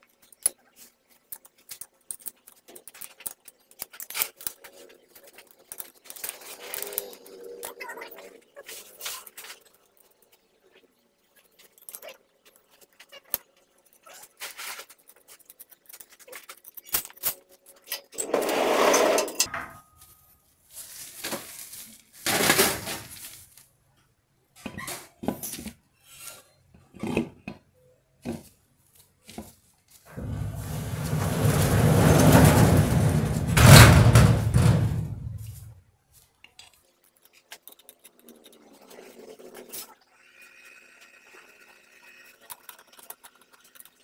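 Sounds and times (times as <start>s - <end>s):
wheel scraping on hub: 18.2s - 19.5s, 30.1s - 35.7s.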